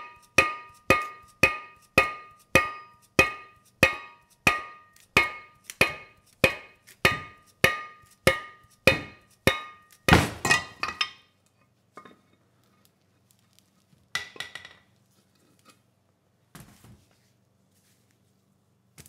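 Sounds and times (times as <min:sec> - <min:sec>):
sharp metallic knocks: 0:00.0 - 0:11.0.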